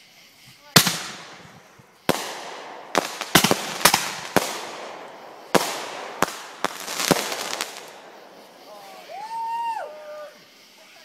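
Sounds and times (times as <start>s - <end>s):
fireworks crackling: 0.0s - 11.0s
fireworks bangs: 0.4s - 10.7s.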